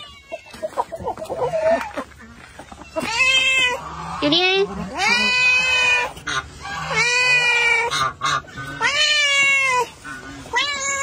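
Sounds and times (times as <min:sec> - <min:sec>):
cat meowing: 0:10.5 - 0:11.0.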